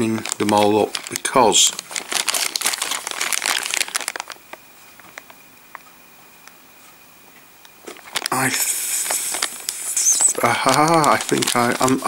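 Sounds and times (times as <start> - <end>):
plastic bag crinkling: 0.0 - 5.4, 7.8 - 12.0.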